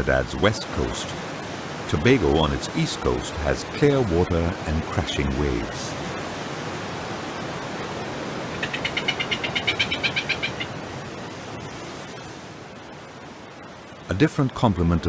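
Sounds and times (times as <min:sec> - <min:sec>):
surf washing over rocks: 0:00.0 - 0:15.0
bird rattling call: 0:08.6 - 0:10.7.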